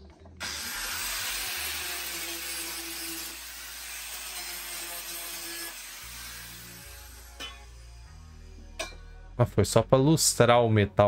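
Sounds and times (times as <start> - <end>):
angle grinder grinding metal: 0.4 - 9.0.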